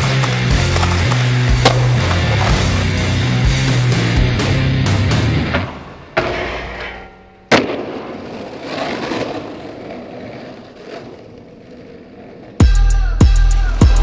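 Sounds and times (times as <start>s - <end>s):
skateboard cracks: 0.0s - 3.1s, 7.5s - 12.6s
skateboard wheels rolling on asphalt: 0.0s - 6.9s, 7.5s - 14.0s.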